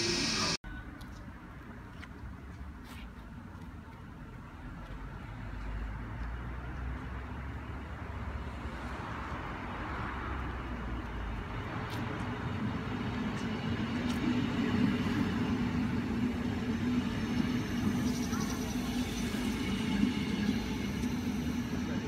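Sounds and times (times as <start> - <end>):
train running and rolling: 0.0 - 0.6, 8.4 - 22.0.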